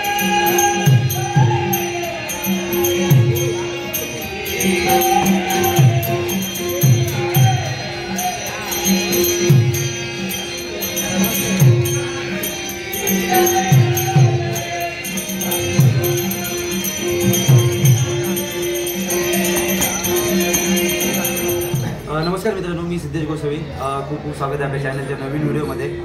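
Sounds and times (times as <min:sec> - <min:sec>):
hand cymbals jingling: 0:00.0 - 0:22.6
harmonium holding a note: 0:00.0 - 0:22.7.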